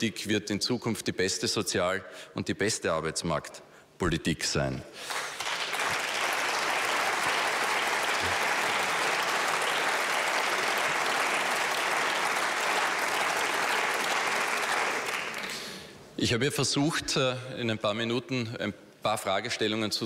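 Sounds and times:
crowd applauding: 5.0s - 15.8s.

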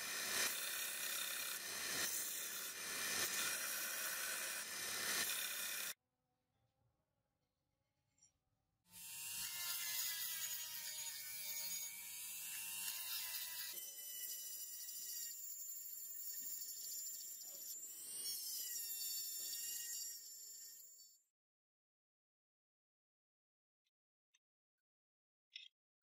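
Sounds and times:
rotary tool grinding metal: 0.0s - 6.0s, 9.0s - 21.3s.

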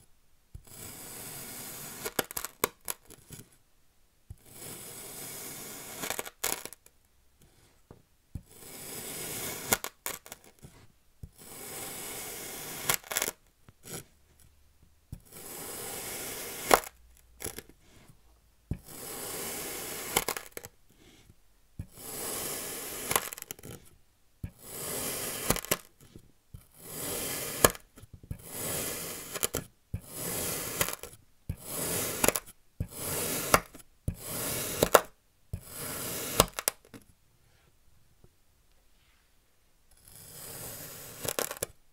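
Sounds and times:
knife cutting through sand: 8.5s - 9.8s, 18.9s - 20.4s, 24.6s - 25.7s, 26.8s - 27.8s, 28.4s - 31.0s, 31.6s - 35.0s, 35.6s - 36.6s, 40.1s - 41.5s.

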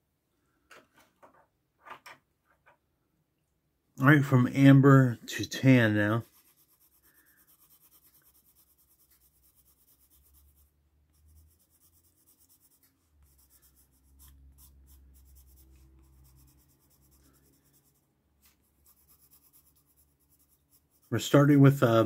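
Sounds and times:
pencil scratching on paper: 5.3s - 22.0s.

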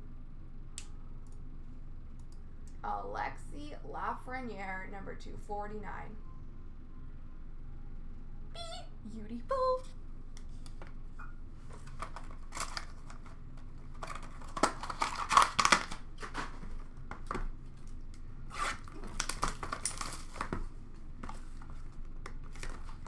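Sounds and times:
plastic wrappers crinkling: 11.7s - 23.0s.

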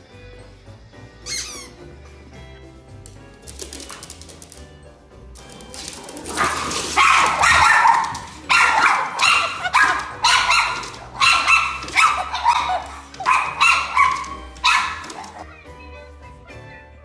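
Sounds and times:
puppy yapping: 6.3s - 15.5s.

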